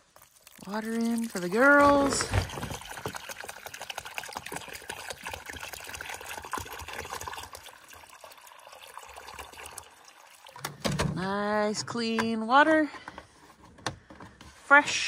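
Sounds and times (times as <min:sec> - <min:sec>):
water pouring and splashing: 0:00.0 - 0:11.4.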